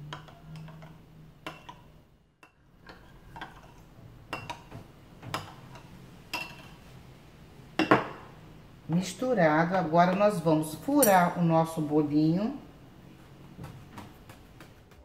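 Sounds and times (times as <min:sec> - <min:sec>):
spoon stirring syrup: 0:00.0 - 0:06.9.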